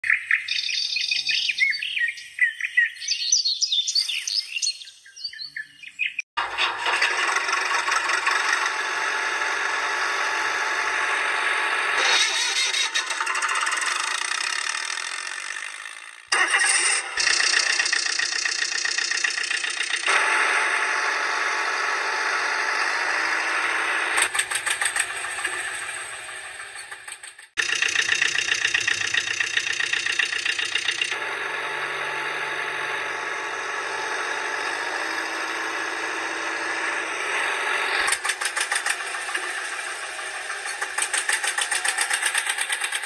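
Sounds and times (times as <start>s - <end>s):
engine starting and running: 6.4s - 43.0s.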